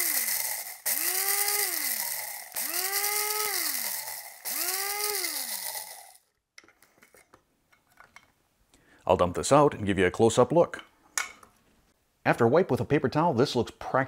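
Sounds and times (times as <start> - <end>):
coffee grinder motor whine: 0.0 - 6.2
rice rattling against blade: 0.0 - 6.2.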